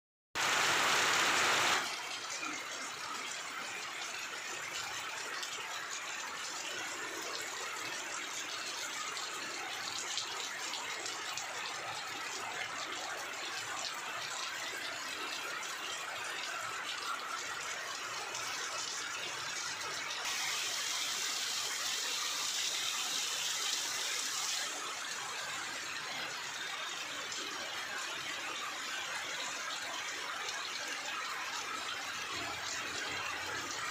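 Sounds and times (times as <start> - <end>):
heavy rain on foliage: 0.4 - 2.5, 20.2 - 25.1.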